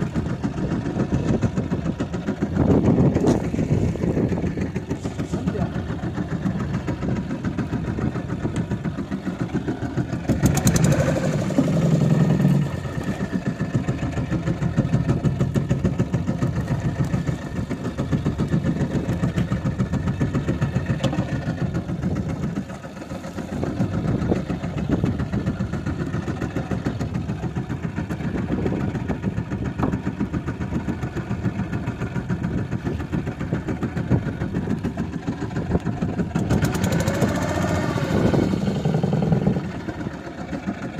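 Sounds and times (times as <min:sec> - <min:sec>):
boat engine running: 0:00.0 - 0:40.9.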